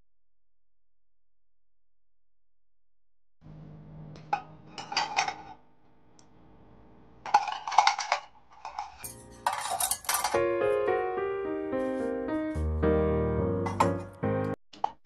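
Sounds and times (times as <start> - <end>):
piano music: 9.0 - 14.6.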